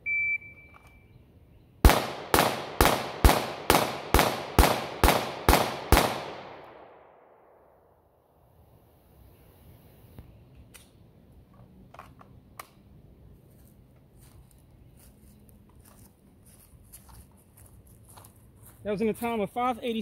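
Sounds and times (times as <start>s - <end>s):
pistol shots echoing: 1.8s - 8.0s.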